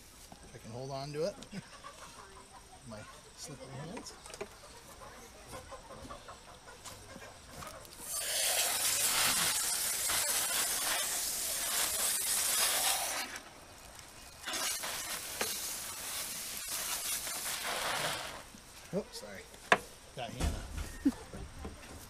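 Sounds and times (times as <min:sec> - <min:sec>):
hose spray rushing: 0:08.0 - 0:18.6.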